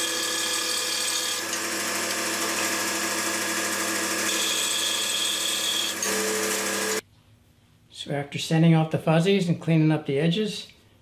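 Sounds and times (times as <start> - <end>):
band saw cutting wood: 0.0 - 7.0.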